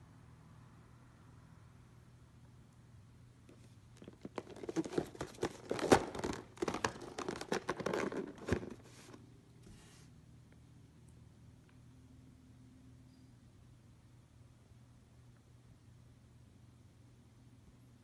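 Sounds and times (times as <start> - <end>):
plastic and cardboard crinkling: 3.5 - 9.2.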